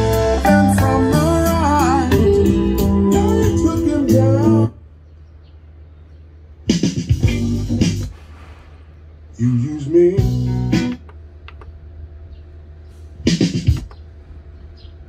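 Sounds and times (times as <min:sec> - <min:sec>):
recorded guitar music: 0:00.0 - 0:04.7, 0:10.2 - 0:11.1.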